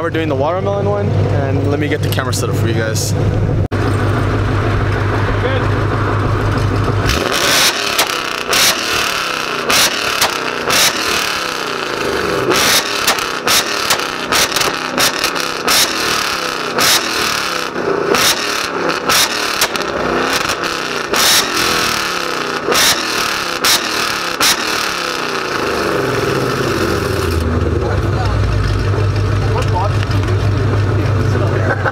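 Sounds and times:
car engine revving: 0:00.0 - 0:31.9
exhaust pops and bangs: 0:04.8 - 0:11.4, 0:12.4 - 0:17.5, 0:18.1 - 0:21.8.

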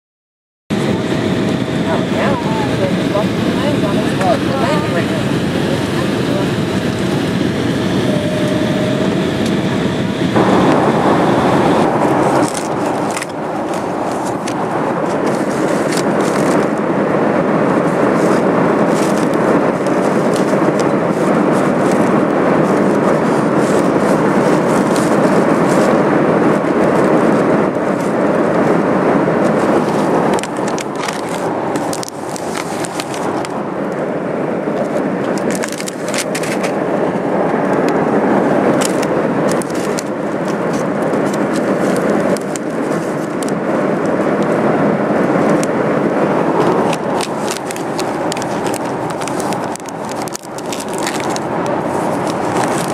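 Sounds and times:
airliner cabin noise: 0:00.7 - 0:52.9
foil chip bag crinkling: 0:29.5 - 0:33.5, 0:46.6 - 0:52.9.

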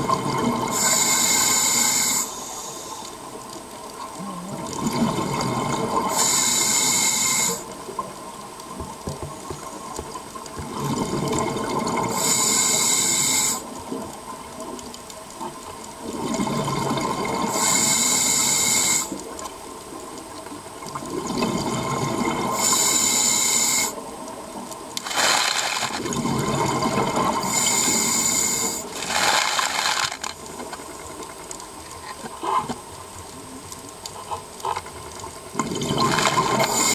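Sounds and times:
exhaled bubbles rushing underwater: 0:00.0 - 0:00.8, 0:04.5 - 0:06.2, 0:10.4 - 0:12.2, 0:16.0 - 0:17.6, 0:20.8 - 0:22.6, 0:25.4 - 0:27.6, 0:35.5 - 0:36.9
regulator inhale hiss: 0:00.7 - 0:03.2, 0:06.1 - 0:07.8, 0:12.1 - 0:13.7, 0:17.5 - 0:19.2, 0:22.5 - 0:24.0, 0:27.4 - 0:29.0, 0:36.6 - 0:36.9.

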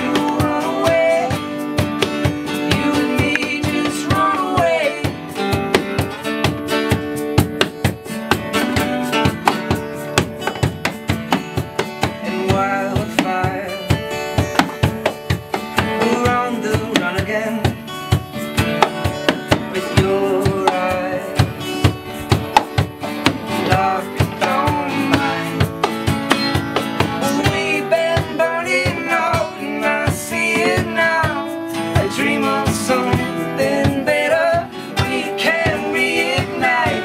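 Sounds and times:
man singing: 0:00.0 - 0:05.5, 0:12.2 - 0:14.0, 0:15.8 - 0:18.1, 0:19.2 - 0:21.8, 0:23.5 - 0:25.9, 0:27.1 - 0:37.0
acoustic guitars strummed: 0:00.0 - 0:37.0
box drum slapped by hand: 0:00.0 - 0:37.0.

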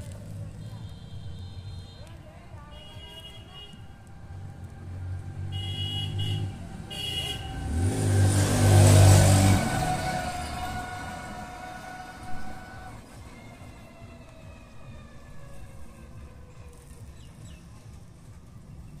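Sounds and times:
vehicle engine passing by: 0:04.0 - 0:19.0.

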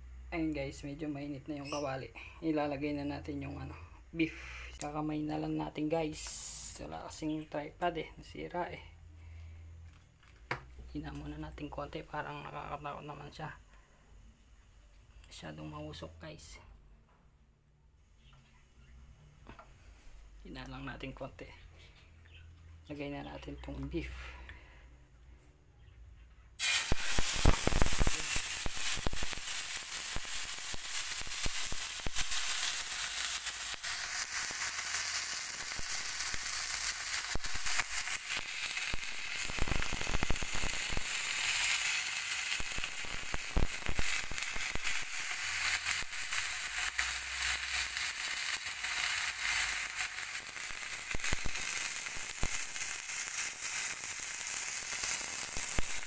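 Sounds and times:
steak sizzling in a pan: 0:26.6 - 0:56.0.

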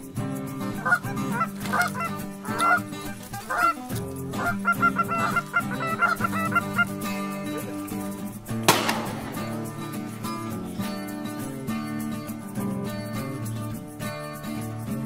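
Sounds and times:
background music: 0:00.0 - 0:15.0
geese honking: 0:00.6 - 0:11.2.

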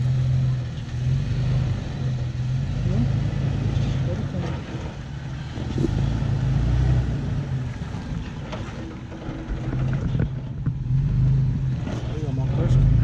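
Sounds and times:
engine running at low revs: 0:00.0 - 0:13.0.

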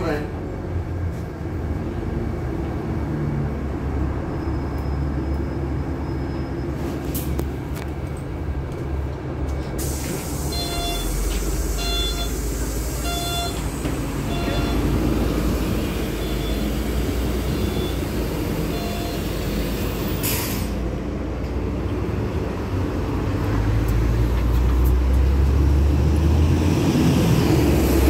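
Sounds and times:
diesel bus engine rumble: 0:00.0 - 0:28.0
air brakes hissing: 0:09.7 - 0:20.9.

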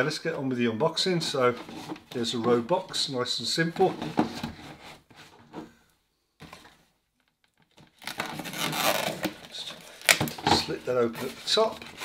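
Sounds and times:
cardboard scraping and rustling: 0:01.0 - 0:02.7, 0:03.6 - 0:05.7, 0:07.8 - 0:12.0.

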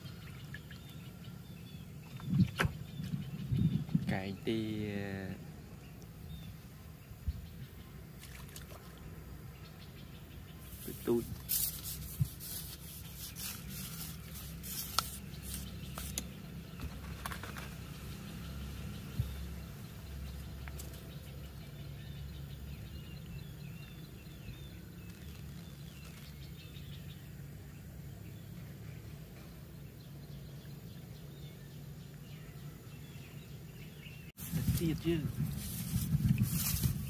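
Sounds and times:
faint bird chirps: 0:18.5 - 0:35.4.

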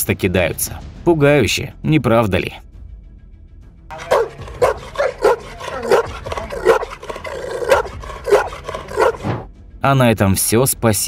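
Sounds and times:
large dog barking: 0:03.9 - 0:09.4.

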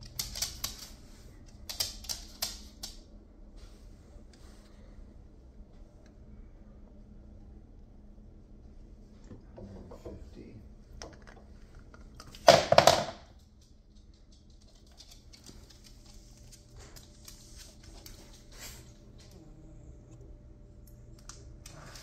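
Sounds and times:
dog walking on hard floor: 0:11.8 - 0:19.4.

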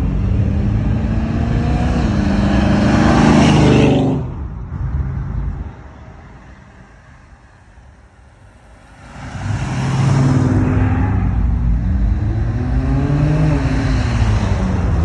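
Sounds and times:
loud engine accelerating: 0:00.0 - 0:04.4, 0:09.1 - 0:15.0
vehicles driving past: 0:00.0 - 0:15.0.

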